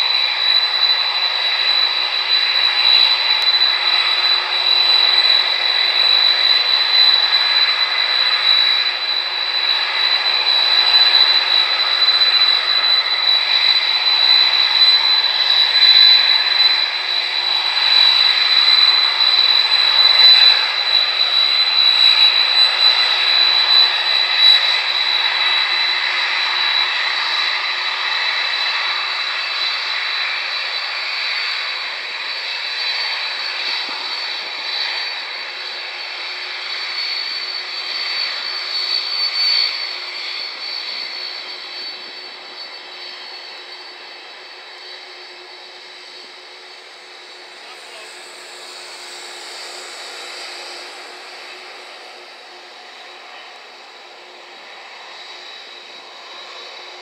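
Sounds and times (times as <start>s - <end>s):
jet engines rushing and whining: 0.0s - 57.0s.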